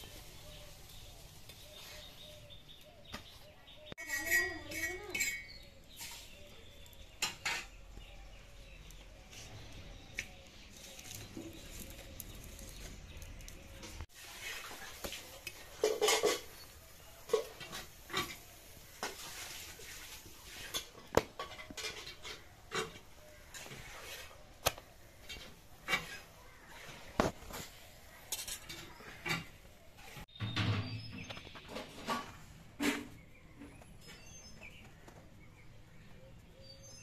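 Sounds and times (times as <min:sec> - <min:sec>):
metal spatula scraping griddle: 0:14.1 - 0:30.3.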